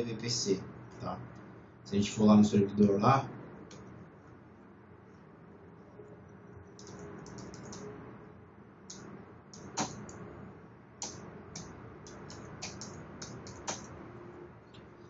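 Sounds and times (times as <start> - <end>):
keyboard keystrokes: 6.8 - 7.8.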